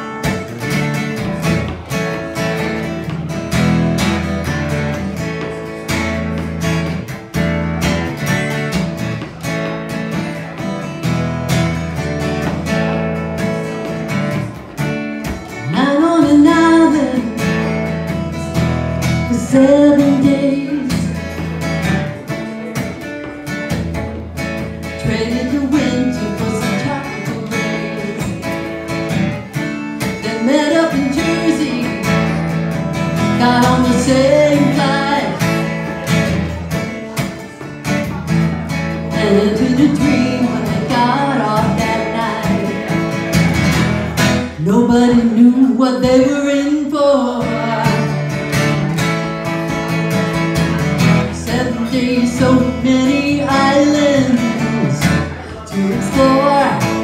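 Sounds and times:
acoustic guitar strumming: 0.0 - 57.0
woman singing: 15.2 - 22.4, 24.8 - 37.4, 39.0 - 43.2, 44.5 - 48.9, 51.2 - 57.0.

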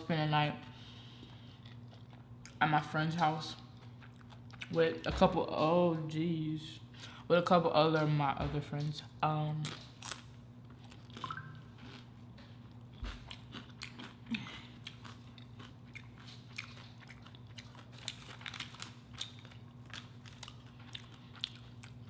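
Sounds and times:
chewing food: 1.0 - 5.7, 9.6 - 22.0
small crunches: 12.8 - 22.0.

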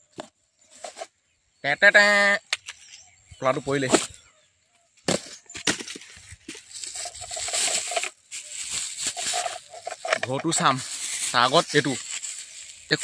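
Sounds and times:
bubble wrap crinkling: 6.0 - 13.0.

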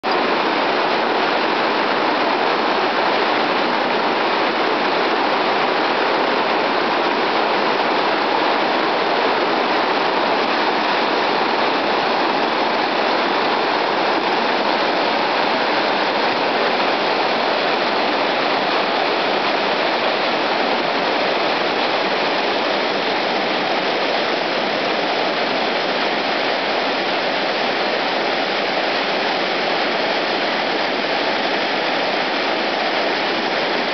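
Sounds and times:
whitewater rapids roaring: 0.0 - 33.9.

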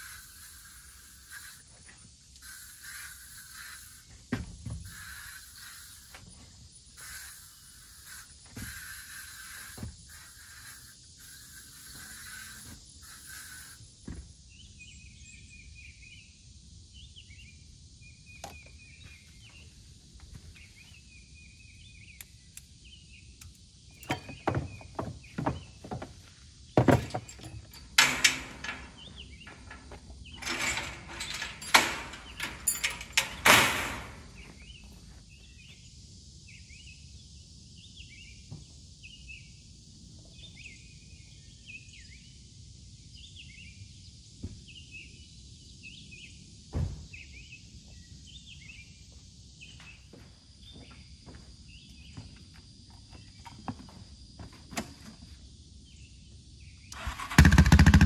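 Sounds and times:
ratchet straps clicking and rattling: 0.0 - 1.7, 2.4 - 4.1, 4.8 - 6.2, 7.0 - 13.8, 26.9 - 34.4.

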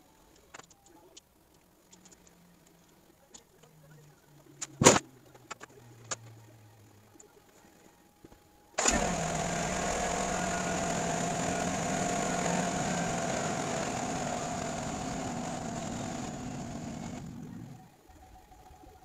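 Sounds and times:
pickup engine idling: 8.8 - 17.8.

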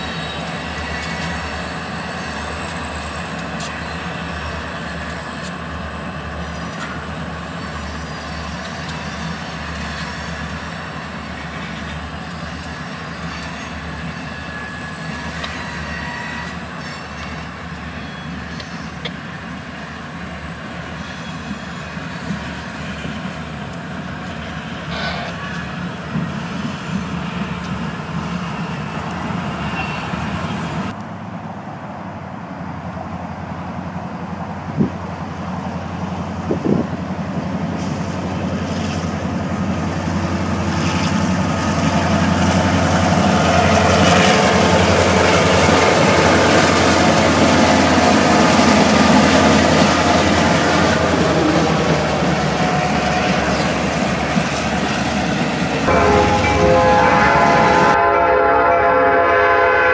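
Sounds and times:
diesel locomotive engine drone: 0.0 - 59.9.

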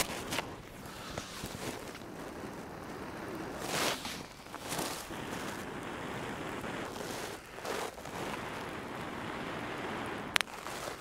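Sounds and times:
breaths blown into dry grass: 3.2 - 8.6.

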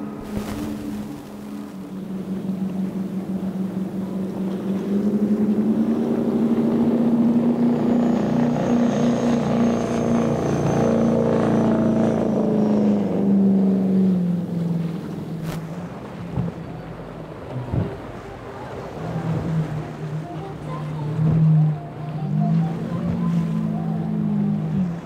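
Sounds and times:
powerboat engines droning: 0.0 - 25.0.

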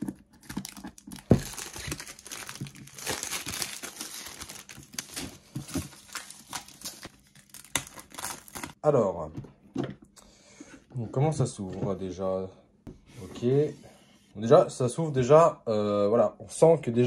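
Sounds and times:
plastic shrink wrap crinkling and tearing: 0.0 - 8.8.

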